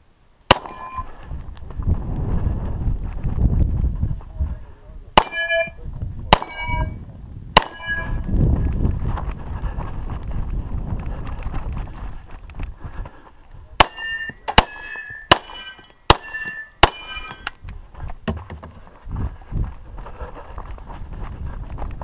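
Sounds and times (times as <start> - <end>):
metallic ring of steel target: 0.5 - 1.1, 5.2 - 7.0, 7.6 - 8.3, 13.8 - 17.6
pistol shots: 6.3 - 6.8, 13.8 - 17.4
scuffing movement noise: 17.7 - 22.0.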